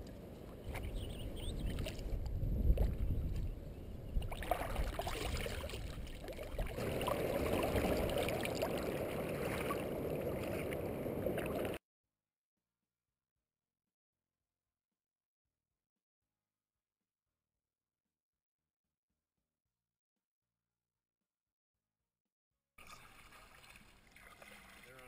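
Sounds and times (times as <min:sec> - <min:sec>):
paddle splashing: 0:00.5 - 0:03.1, 0:04.2 - 0:11.8, 0:22.8 - 0:25.0
water washing against hull: 0:04.2 - 0:11.8, 0:22.8 - 0:25.0.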